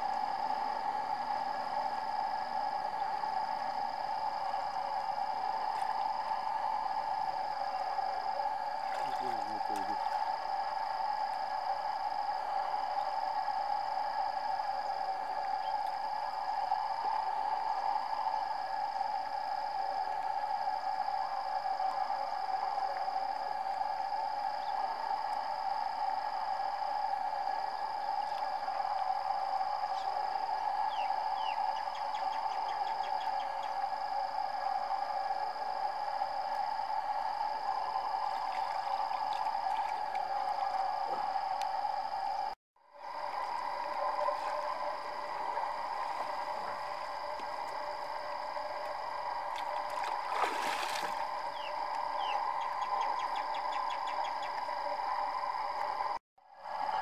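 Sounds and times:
steady drone: 0.0 - 57.0
steady hum: 0.0 - 57.0
water splashing and sloshing: 8.4 - 11.5, 37.6 - 41.7, 43.0 - 52.6.

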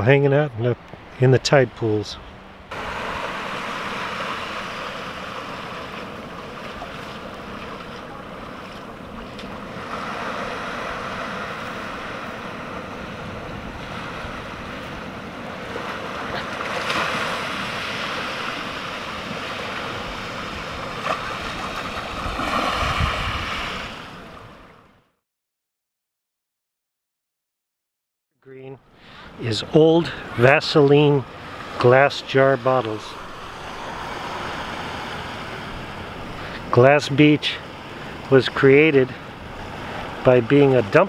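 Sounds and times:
wind buffeting microphone: 0.4 - 23.9
surf washing onto rocky shore: 2.7 - 24.4, 30.3 - 41.0.

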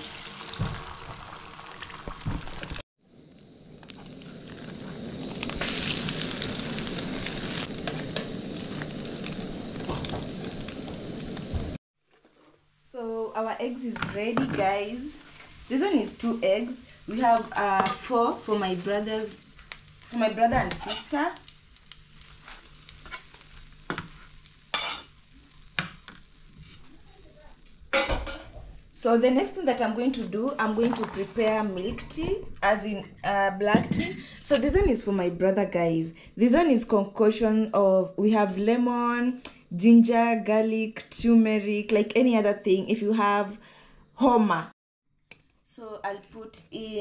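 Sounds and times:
eggs sizzling in oil: 0.0 - 32.8
spoon turning eggs in pan: 20.5 - 26.8
metal spoon scraping a plate: 20.7 - 21.2, 24.7 - 25.1.

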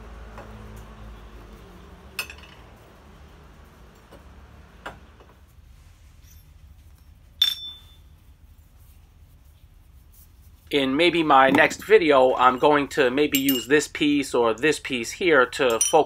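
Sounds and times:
steel clinking on anvil: 7.4 - 8.1, 11.6 - 13.9, 15.6 - 16.0.

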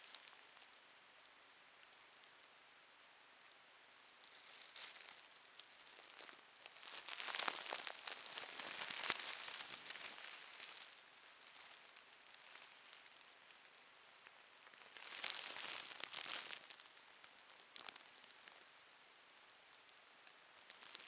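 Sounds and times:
plastic bags crinkling: 4.2 - 13.2, 14.9 - 16.9.

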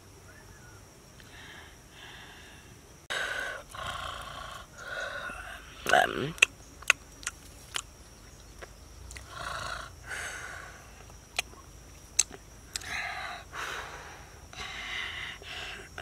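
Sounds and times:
breathy puffs of air: 1.2 - 3.7, 10.0 - 11.0, 12.8 - 16.0
mouth clicks and smacks: 5.9 - 7.9, 11.3 - 12.9.

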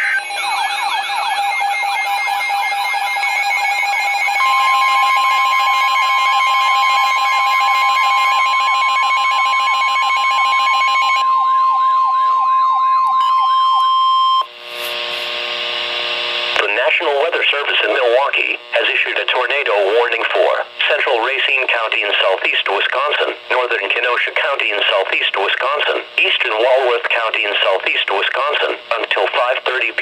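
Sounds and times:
warbling alert siren: 0.0 - 14.5
steady warning tone: 0.0 - 30.0
radio static hiss: 14.5 - 30.0.

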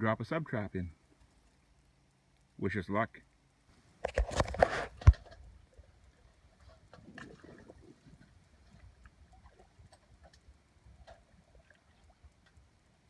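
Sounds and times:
faint clicks: 1.1 - 2.6, 8.2 - 12.7
faint water sloshing: 4.7 - 13.0.

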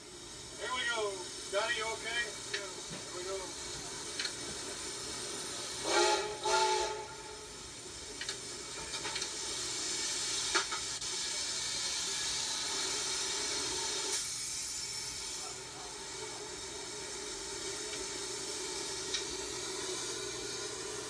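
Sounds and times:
steam locomotive hissing: 0.0 - 21.0
steam whistle blasts: 5.8 - 7.6.

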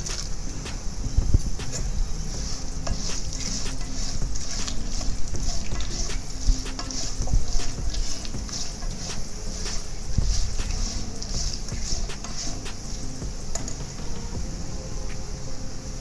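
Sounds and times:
ghee sizzling in a pan: 0.0 - 14.4
spatula scraping and clicking: 2.4 - 12.9.

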